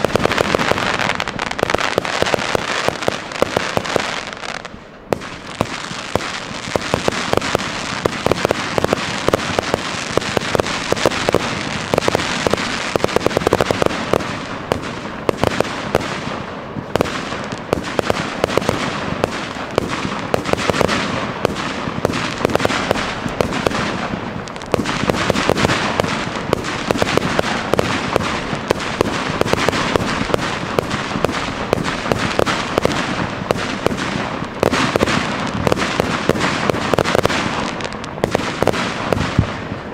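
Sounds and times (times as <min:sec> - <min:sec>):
fireworks bursting and crackling: 0:00.0 - 0:39.9.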